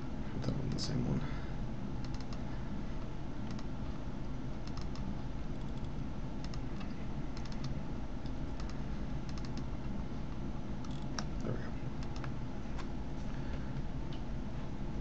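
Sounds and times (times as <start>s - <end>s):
mouse and keyboard clicks: 4.6s - 5.0s, 8.6s - 9.7s.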